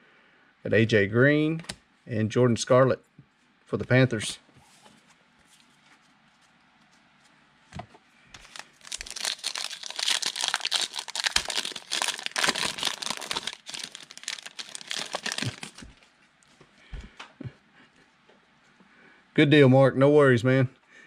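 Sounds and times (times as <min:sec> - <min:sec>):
wrapper crackling: 0:08.4 - 0:16.1.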